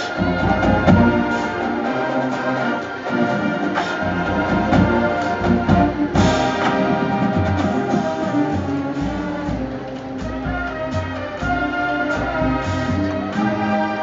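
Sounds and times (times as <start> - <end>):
brass chords: 0.0 - 14.0
drum hits: 3.6 - 11.5.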